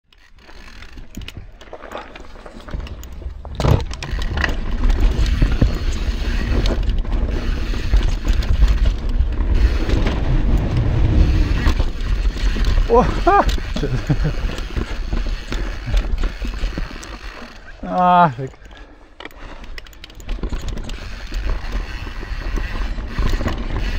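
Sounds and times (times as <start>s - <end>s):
bike knocks and rattles: 0.3s - 17.7s, 19.2s - 23.9s
tyres rumbling on dirt: 0.6s - 18.7s
wind noise: 2.6s - 17.4s.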